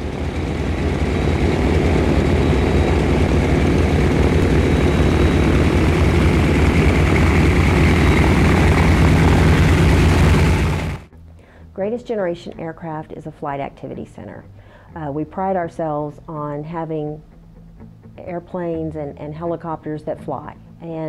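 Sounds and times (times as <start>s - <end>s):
propeller engines droning: 0.0s - 11.1s.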